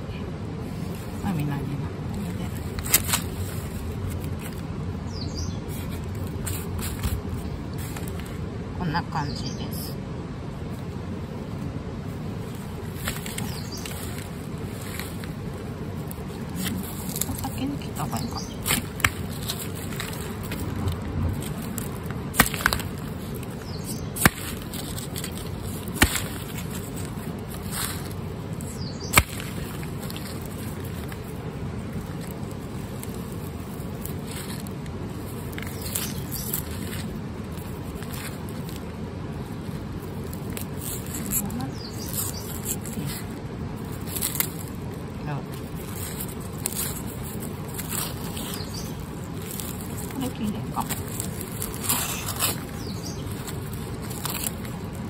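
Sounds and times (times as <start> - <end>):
steady background noise: 0.0 - 55.0
papery skins rustling: 0.6 - 5.0, 5.6 - 8.5, 10.7 - 55.0
knife snapping garlic roots: 16.0 - 31.3.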